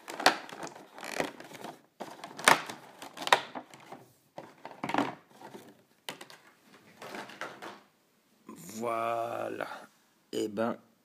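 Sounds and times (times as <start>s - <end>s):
plastic packaging clicks and knocks: 0.0s - 7.9s
plastic packaging rustling: 0.0s - 7.9s.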